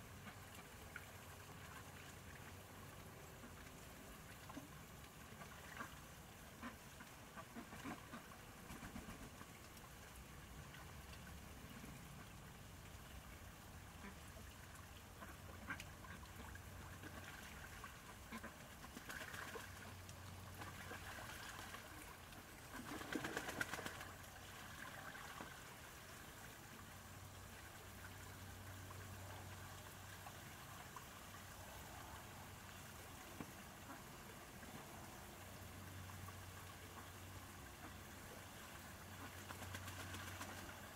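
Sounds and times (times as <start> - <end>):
ducks splashing in water: 4.2 - 9.7, 13.9 - 26.4, 37.7 - 40.9
ducks quacking softly: 4.5 - 9.5, 13.9 - 24.0, 30.6 - 40.9.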